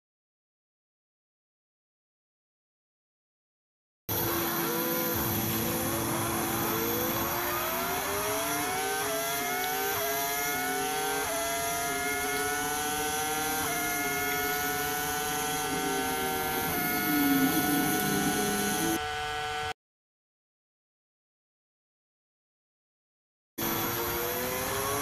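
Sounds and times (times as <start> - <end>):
racing car engine accelerating: 4.1 - 19.7, 23.6 - 25.0
racing motorcycle engine accelerating: 4.1 - 19.7, 23.6 - 25.0.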